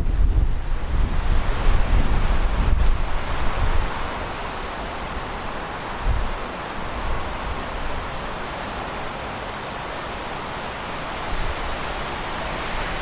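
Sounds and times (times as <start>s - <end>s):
wind buffeting microphone: 0.0s - 8.3s.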